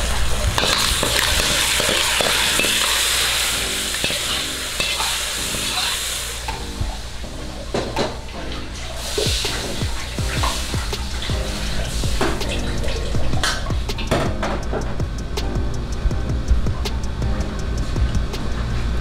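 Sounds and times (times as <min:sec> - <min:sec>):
food sizzling in wok: 0:00.0 - 0:14.4
metal ladle scraping wok: 0:00.4 - 0:06.2.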